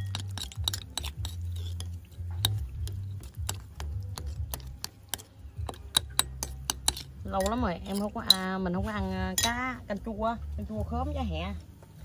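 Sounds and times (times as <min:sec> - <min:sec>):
metal spoon scraping a bowl: 0:00.0 - 0:09.9.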